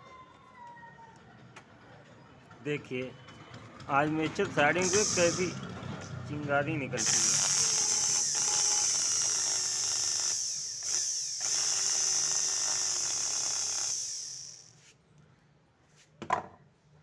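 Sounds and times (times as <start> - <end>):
mixer grinder motor whining: 3.8 - 14.8.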